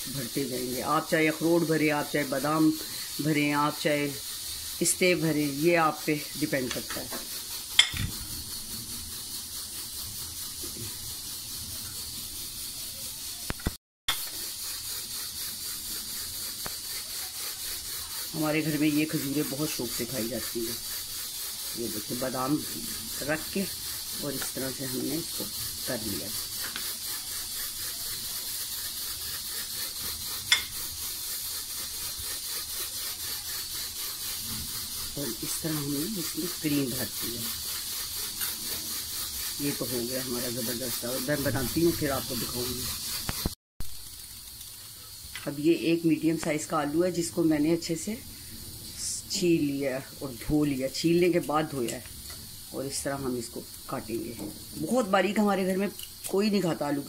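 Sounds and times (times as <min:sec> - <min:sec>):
steady hiss: 0:00.0 - 0:57.0
sharp click: 0:13.5 - 0:14.2.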